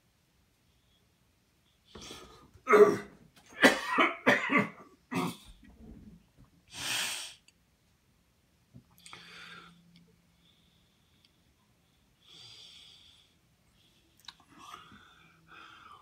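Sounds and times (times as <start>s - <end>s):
person coughing: 2.7s - 5.5s.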